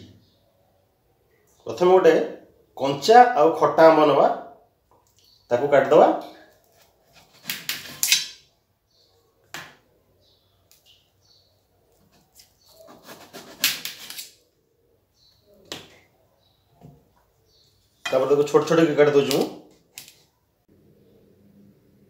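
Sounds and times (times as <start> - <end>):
knife slicing mango on steel plate: 12.1 - 14.2.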